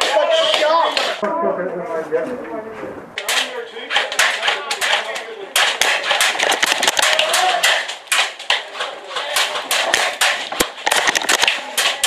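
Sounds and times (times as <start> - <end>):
airsoft gunfire: 3.2 - 12.0
bbs striking: 3.2 - 12.0.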